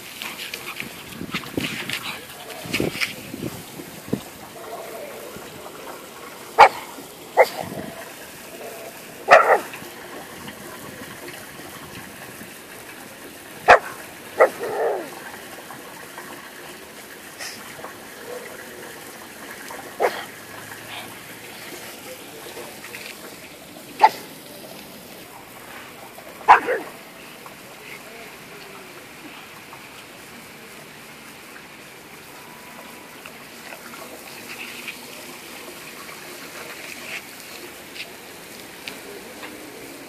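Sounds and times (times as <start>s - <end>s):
dog barking: 6.6s - 7.6s, 8.6s - 9.7s, 13.7s - 15.1s, 20.0s - 20.3s, 24.0s - 24.3s, 26.5s - 27.0s.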